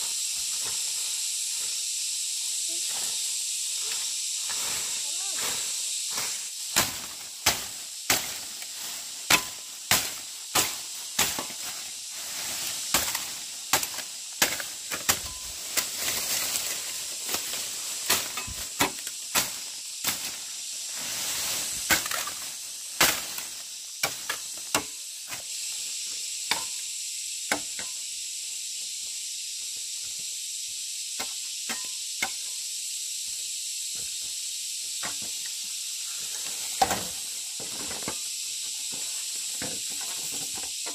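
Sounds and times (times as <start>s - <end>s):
steady high hiss: 0.0s - 40.9s
wood chopping strokes: 6.1s - 20.4s, 21.7s - 25.5s.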